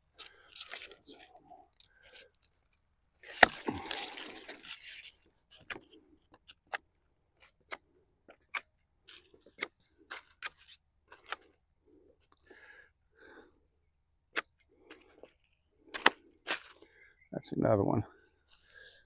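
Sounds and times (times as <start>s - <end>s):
branch snapping and clicking: 3.2s - 4.6s, 15.9s - 16.8s
leaves rustling: 3.2s - 5.2s.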